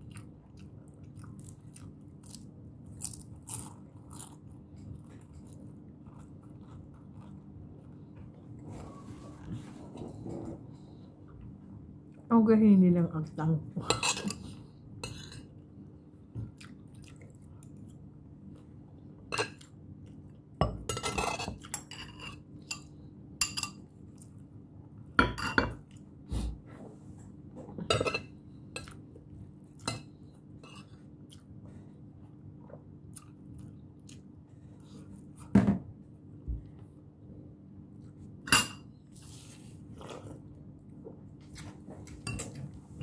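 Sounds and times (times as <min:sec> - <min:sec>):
chewing: 0:00.0 - 0:08.6, 0:16.4 - 0:18.7, 0:30.8 - 0:31.6, 0:32.6 - 0:35.2
faint steady hum: 0:00.0 - 0:43.0.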